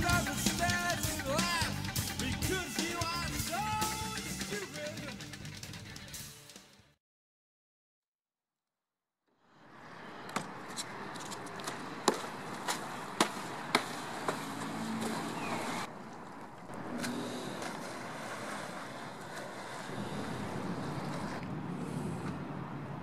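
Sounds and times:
wind: 9.4 - 23.0
water noise: 9.6 - 23.0.

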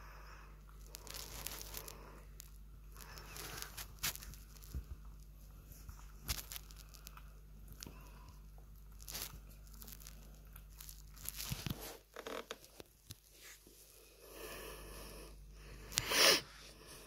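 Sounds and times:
kitten eating and lapping: 0.0 - 17.0
rustling scrape: 0.9 - 2.0, 3.0 - 7.2, 8.9 - 14.0.

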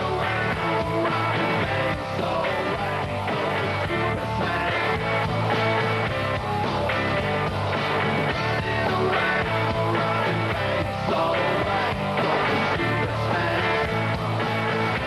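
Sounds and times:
person singing: 0.0 - 5.0, 8.4 - 14.0
bass guitar: 0.0 - 15.0
drums with steady beat: 0.0 - 15.0
electric guitars: 0.0 - 15.0.

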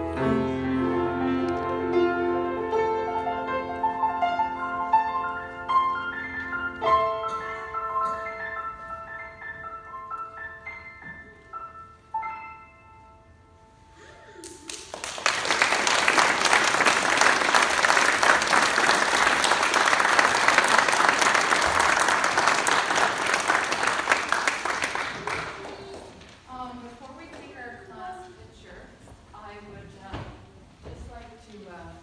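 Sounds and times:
grand piano playing: 0.0 - 14.4
audience applause: 14.4 - 26.3.

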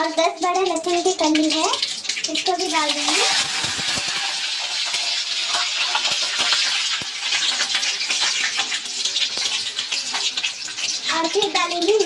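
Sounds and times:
frying in hot oil: 0.0 - 12.0.

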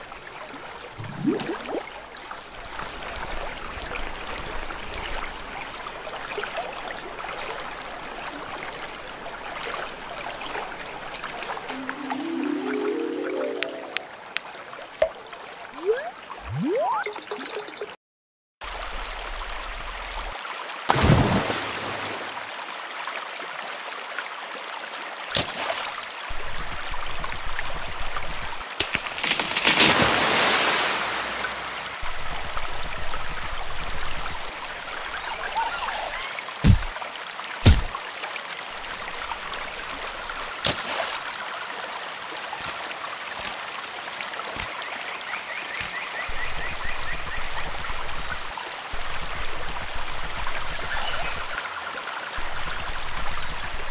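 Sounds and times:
flowing stream water: 0.0 - 18.0, 18.6 - 53.9
sharp knocks and thuds: 36.6 - 37.0, 37.6 - 38.0.

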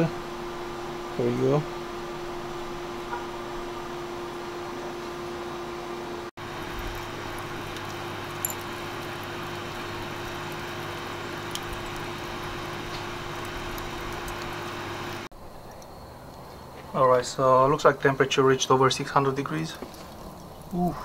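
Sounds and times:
charcoal fire rushing: 6.4 - 15.3, 18.5 - 21.0
fire crackles: 6.4 - 16.6, 18.4 - 21.0.

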